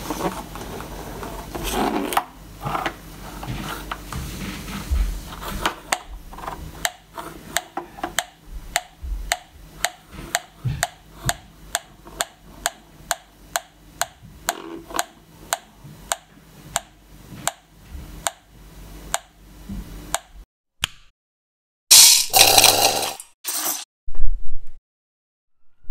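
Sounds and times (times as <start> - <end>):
gas detector ticking: 6.8 - 7.0, 7.6 - 17.6, 18.2 - 18.5.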